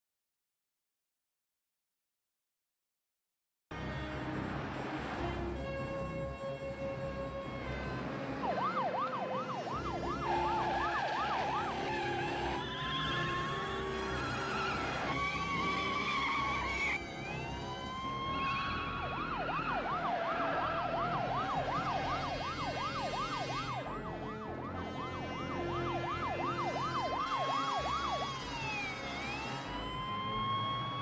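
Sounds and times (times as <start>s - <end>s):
police siren wailing and yelping: 8.4s - 31.0s.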